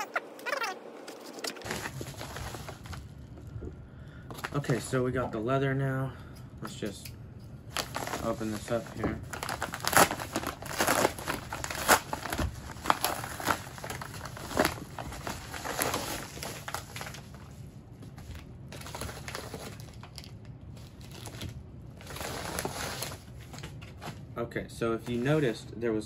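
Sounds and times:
plastic wrapping crinkling: 1.6 - 3.3, 7.7 - 24.2.

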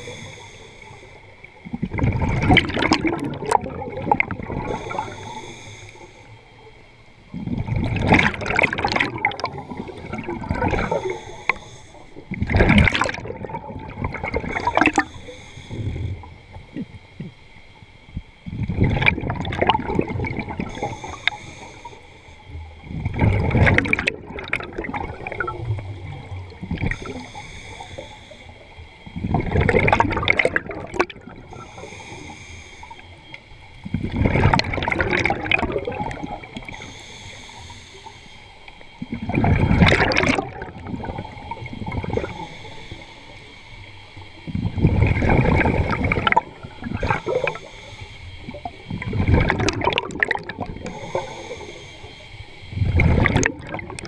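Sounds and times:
diver breathing through regulator: 0.0 - 1.5, 3.5 - 6.5, 8.8 - 13.1, 14.2 - 16.6, 20.0 - 22.5, 26.1 - 29.7, 30.4 - 34.3, 35.8 - 40.4, 41.1 - 53.5
bubbles gurgling: 1.6 - 5.5, 7.3 - 17.3, 18.4 - 21.4, 22.7 - 27.3, 29.2 - 31.9, 33.9 - 36.8, 39.0 - 42.6, 44.5 - 47.7, 48.4 - 51.7, 52.7 - 54.0.

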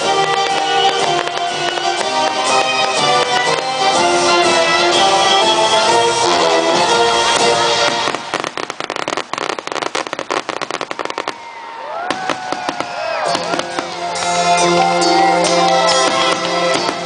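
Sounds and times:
background music: 0.0 - 9.1, 13.1 - 17.0
fireworks bangs and crackles: 0.0 - 17.0
fireworks whistles: 0.0 - 17.0.

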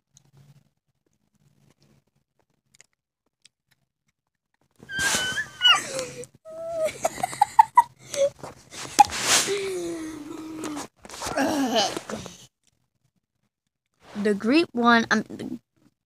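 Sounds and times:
boy squealing: 4.9 - 7.0
boy whimpering: 4.9 - 7.3, 8.0 - 12.4.

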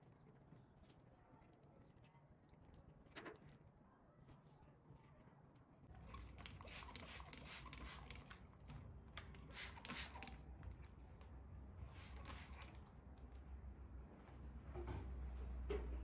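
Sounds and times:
spray bottle spritzing: 6.1 - 8.4, 9.4 - 10.4, 11.9 - 12.8.

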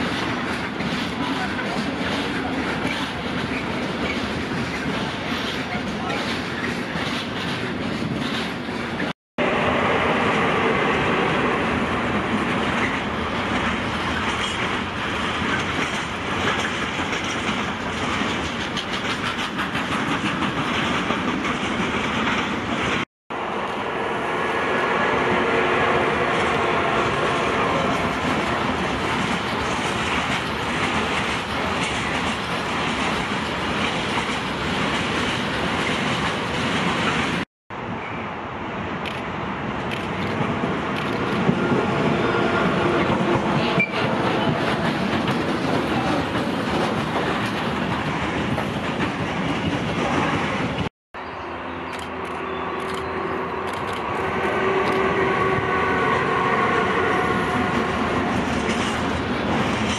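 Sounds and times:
freight train wheels clattering: 0.0 - 9.1, 10.4 - 23.1, 26.2 - 37.4, 39.8 - 50.9, 57.0 - 59.9.

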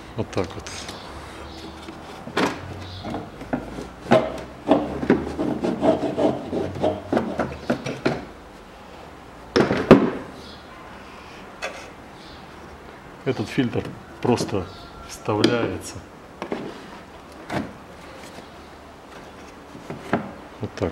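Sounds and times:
hard plastic knocking and scraping: 1.6 - 8.3.

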